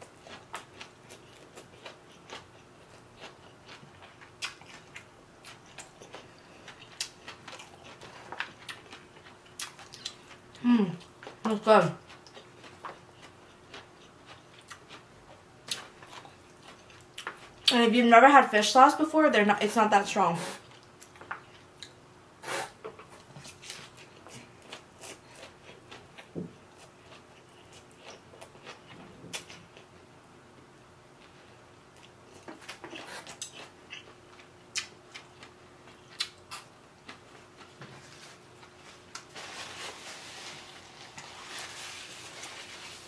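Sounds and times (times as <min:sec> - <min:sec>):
paper napkin rustling: 0:38.0 - 0:43.0.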